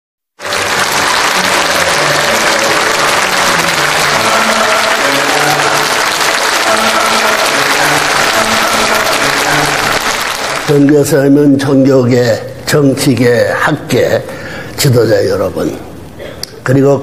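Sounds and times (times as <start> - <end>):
audience applauding: 0.4 - 11.4
music playing: 0.4 - 11.4.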